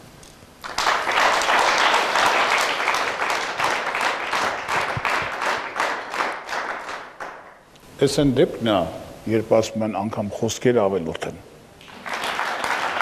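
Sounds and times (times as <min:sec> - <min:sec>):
audience applauding: 0:00.6 - 0:07.6, 0:11.8 - 0:13.0.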